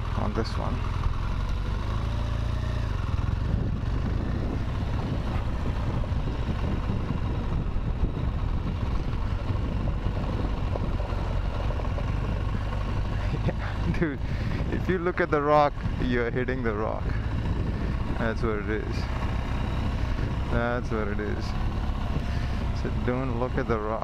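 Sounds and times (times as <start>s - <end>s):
motorcycle engine rumbling: 0.0s - 24.0s.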